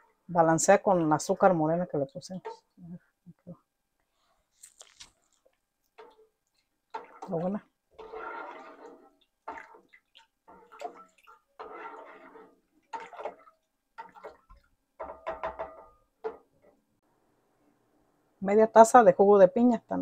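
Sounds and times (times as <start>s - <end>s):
ladle stirring watery sauce: 0.0s - 2.9s, 5.2s - 16.8s.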